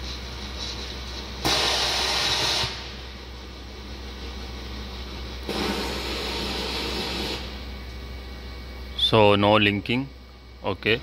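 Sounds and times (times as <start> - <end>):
steady background hum: 0.0 - 11.0.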